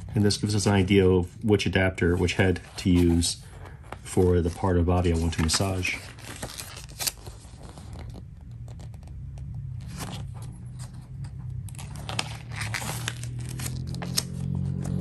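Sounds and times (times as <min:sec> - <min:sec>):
paper pages rustling: 0:00.1 - 0:15.0.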